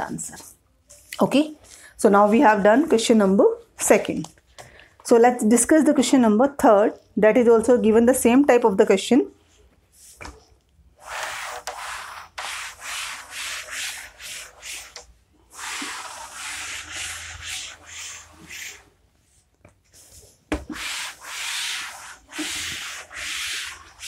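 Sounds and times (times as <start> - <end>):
cloth rubbing chalkboard: 0.9 - 3.2, 9.9 - 24.0.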